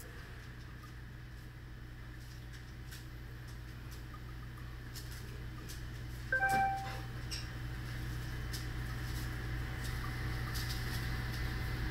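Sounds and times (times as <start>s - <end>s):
low machine hum: 0.0s - 11.9s
short electronic beep: 6.4s - 7.1s.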